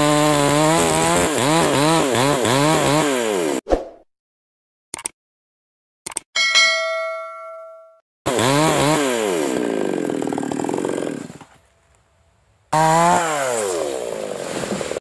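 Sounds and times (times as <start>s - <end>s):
chainsaw cutting wood: 0.0s - 3.6s, 8.3s - 11.6s, 12.8s - 15.0s
bell chime: 6.4s - 8.0s.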